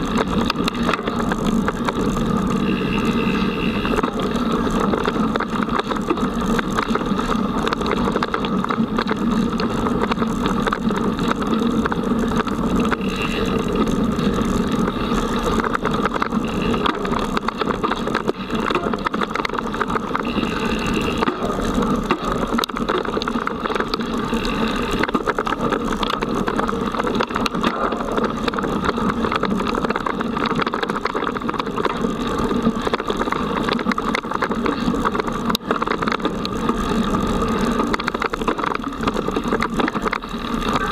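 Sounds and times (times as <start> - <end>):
bike and mount shaking: 0.0 - 40.9
tyre and trail rumble: 0.0 - 40.9.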